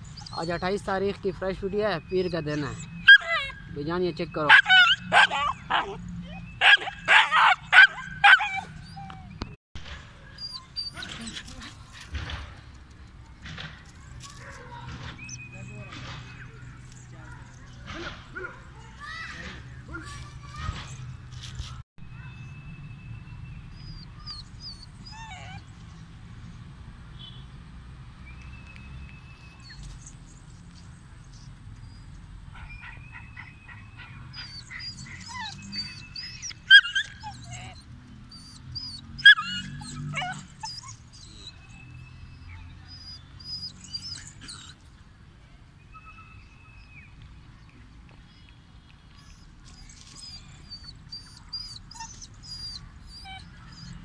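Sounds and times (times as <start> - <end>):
puppy whimpering and whining: 2.6 - 3.6, 8.0 - 9.5, 10.4 - 11.6, 23.8 - 25.7, 34.4 - 41.7, 42.9 - 44.8, 49.3 - 54.0
puppy yelps: 2.7 - 3.7, 4.5 - 9.4, 10.4 - 11.6, 23.9 - 25.6, 32.6 - 41.7, 42.9 - 44.8, 49.3 - 54.0.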